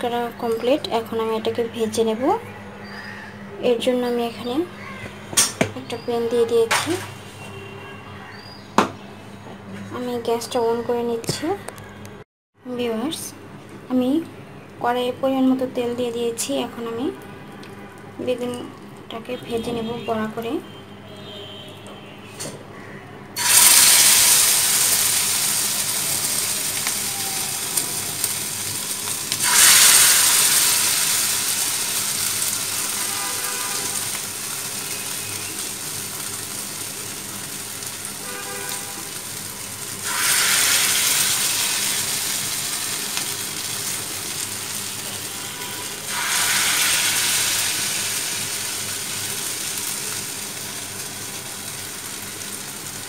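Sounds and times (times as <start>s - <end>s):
fritters sizzling in hot oil: 23.4s - 53.0s.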